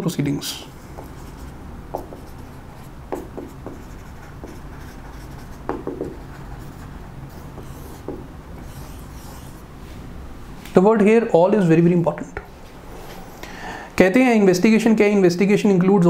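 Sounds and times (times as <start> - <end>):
marker writing on whiteboard: 0.6 - 9.6
marker tip tapping board: 1.9 - 2.3, 3.1 - 4.6, 5.5 - 6.3, 7.6 - 8.8.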